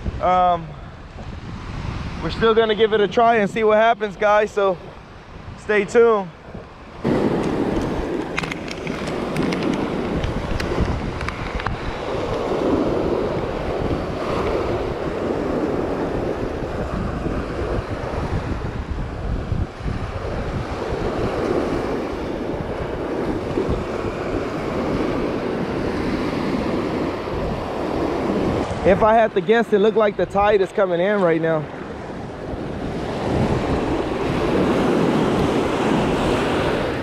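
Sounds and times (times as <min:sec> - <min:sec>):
surf breaking on beach: 0:00.0 - 0:37.0
wind buffeting microphone: 0:00.0 - 0:37.0.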